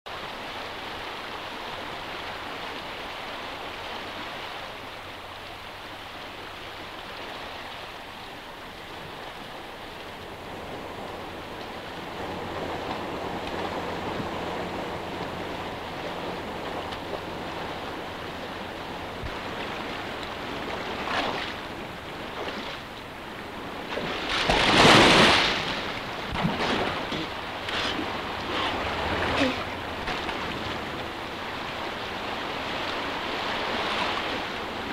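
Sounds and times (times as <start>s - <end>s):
rushing river water: 0.1s - 34.9s
person splashing into river: 23.9s - 30.6s
small splashes: 23.9s - 31.1s.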